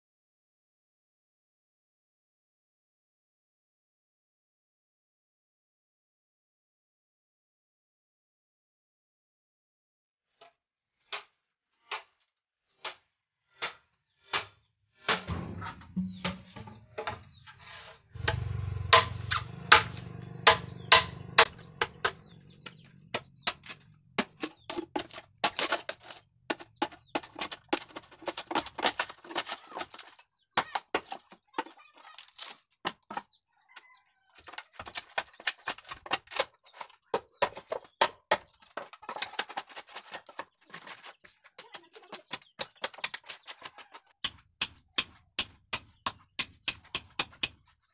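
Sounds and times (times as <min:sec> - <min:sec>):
blade chopping bamboo: 0:18.2 - 0:33.3, 0:34.4 - 0:47.8
chickens calling: 0:18.2 - 0:44.6.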